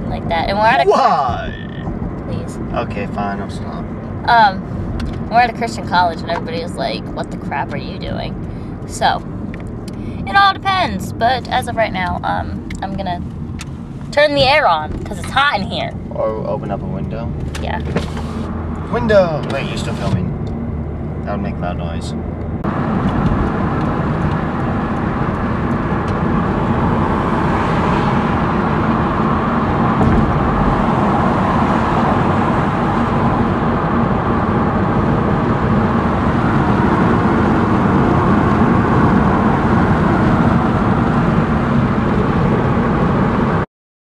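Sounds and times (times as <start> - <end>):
road noise: 0.0 - 43.6
wind buffeting through car window: 22.5 - 43.6.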